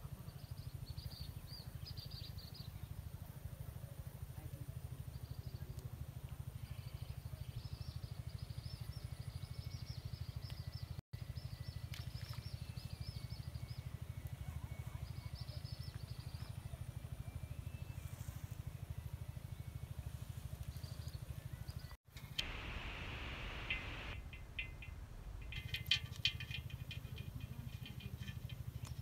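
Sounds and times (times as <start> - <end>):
birds chirping: 20.6 - 29.0
pulsing low hum: 22.3 - 28.8.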